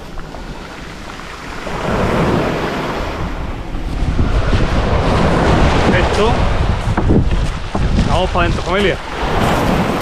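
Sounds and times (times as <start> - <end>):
surf breaking on beach: 0.0 - 10.0
wind rumbling on microphone: 0.0 - 10.0.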